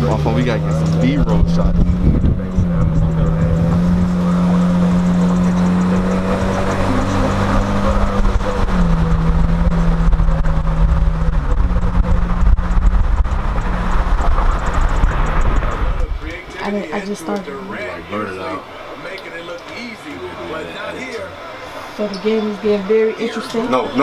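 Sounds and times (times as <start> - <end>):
road and wind noise in car: 0.0 - 17.1
steady low hum: 0.0 - 20.2.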